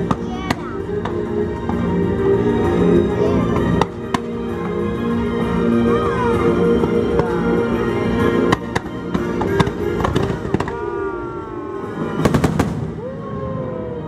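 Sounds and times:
music: 0.0 - 14.0
fireworks bangs: 8.4 - 11.1, 11.8 - 13.5.

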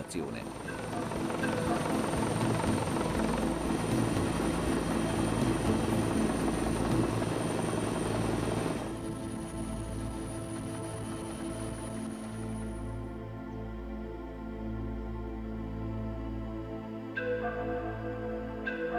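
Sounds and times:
helicopter rotor and engine: 0.0 - 13.1.

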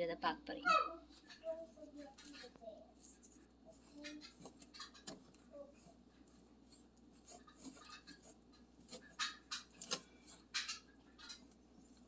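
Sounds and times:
fingers scratching spice on plate: 6.6 - 12.0.

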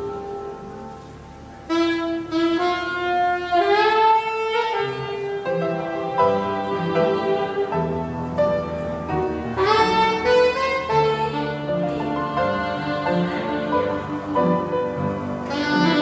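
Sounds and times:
piano chords: 0.0 - 16.0
saxophone melody: 0.0 - 16.0.

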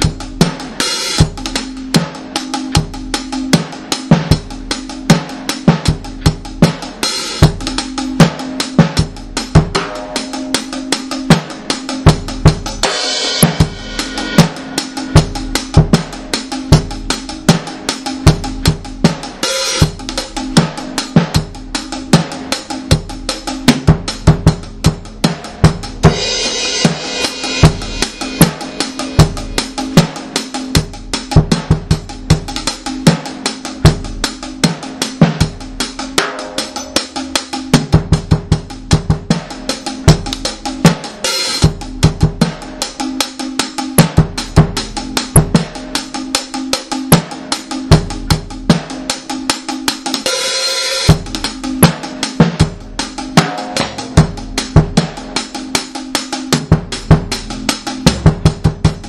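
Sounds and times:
reggae drumming: 0.0 - 59.0.

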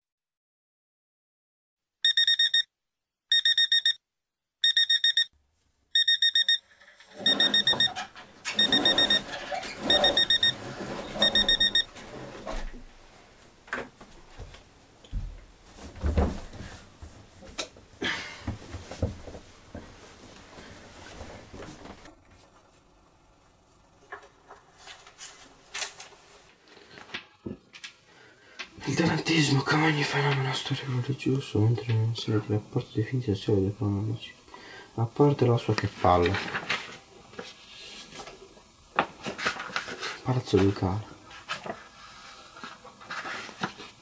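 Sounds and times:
alarm clock beeping: 2.0 - 2.7, 3.3 - 4.0, 4.6 - 5.3, 6.0 - 6.6, 7.2 - 11.9.

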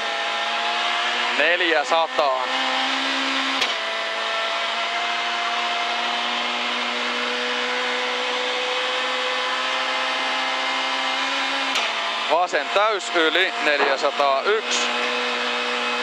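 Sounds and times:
road and tyre noise: 0.0 - 16.0
car engine pulling from inside cabin: 0.1 - 16.0.

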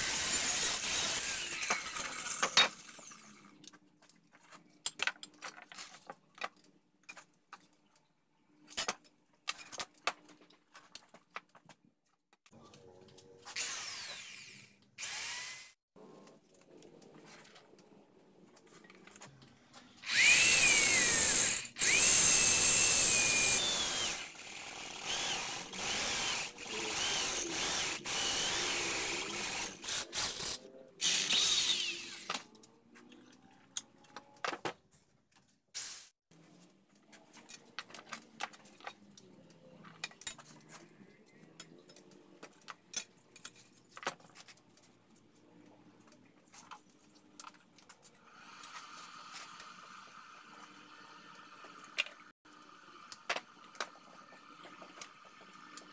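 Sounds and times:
power tool running: 13.6 - 15.8, 20.0 - 32.4.

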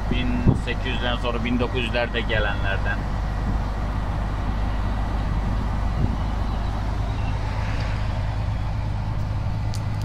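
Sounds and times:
diesel truck engine drone: 0.0 - 10.0
road noise: 0.0 - 10.0.

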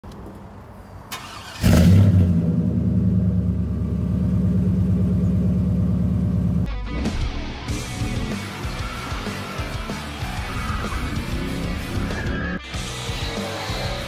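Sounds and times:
pickup engine starting and idling: 1.1 - 6.7.

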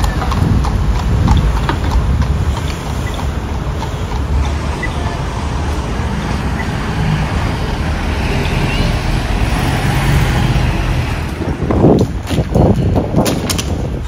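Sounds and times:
wind rumble on microphone: 0.0 - 4.8, 9.2 - 14.0
horse hooves clip-clopping on road: 0.0 - 8.2, 8.8 - 14.0
street traffic: 0.0 - 14.0.

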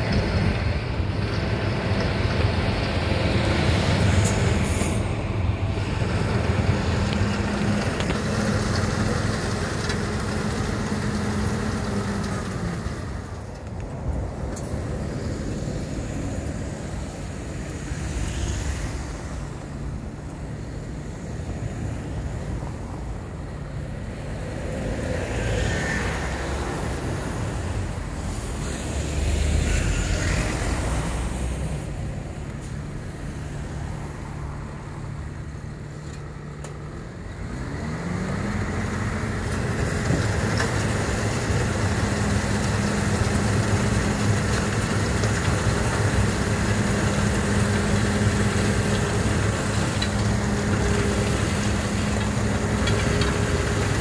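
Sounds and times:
snowplow engine running: 0.0 - 54.0
vehicles passing: 0.0 - 54.0.

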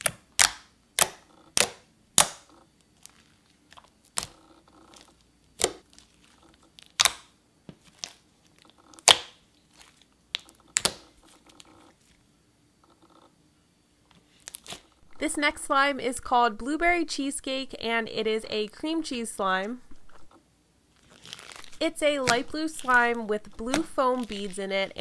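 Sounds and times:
slime squishing: 0.0 - 12.2, 14.3 - 15.3, 20.9 - 25.0
slime clicking pops: 7.0 - 7.3.

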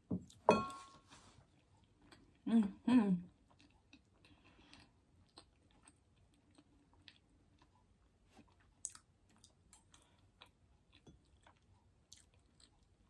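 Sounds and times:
person chewing: 1.4 - 2.4, 3.3 - 13.0.

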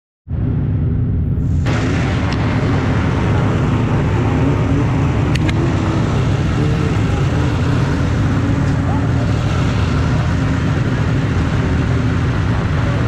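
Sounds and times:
snowmobile engines idling: 1.6 - 13.0
short sharp clicks: 5.3 - 5.6.

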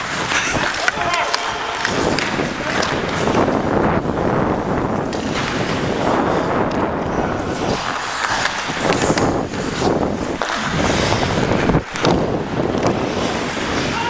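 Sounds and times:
skate blades scraping ice: 0.0 - 14.0
wind on microphone: 0.0 - 14.0.

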